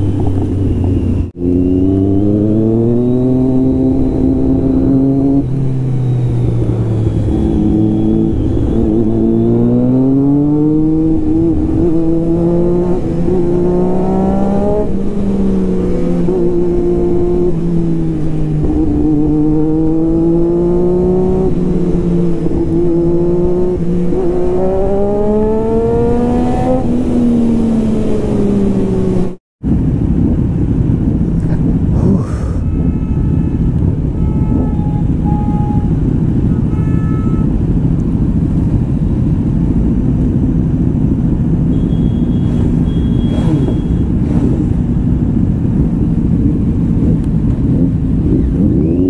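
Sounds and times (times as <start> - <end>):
loud vehicle engine revving: 0.0 - 29.4, 39.7 - 49.0.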